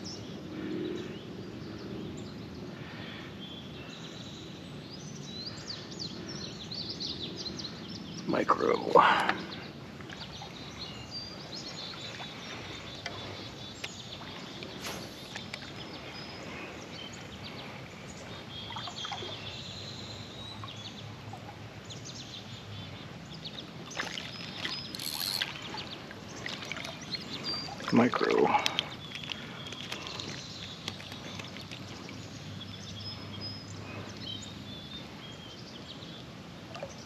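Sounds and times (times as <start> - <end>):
birds chirping: 0.0 - 37.0
outdoor background noise: 0.0 - 37.0
light clicks and rustles: 28.6 - 32.0.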